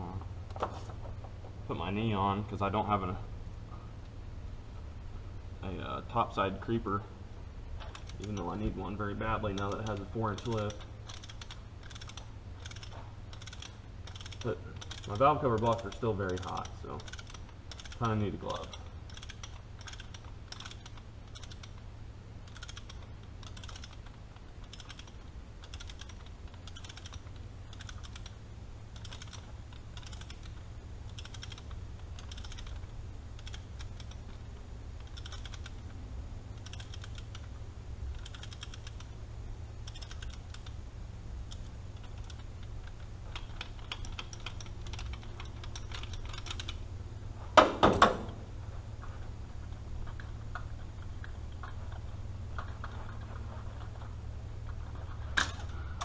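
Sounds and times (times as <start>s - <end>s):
ratchet clicking: 7.8s - 37.5s, 38.1s - 39.2s, 39.8s - 40.8s, 41.4s - 46.8s.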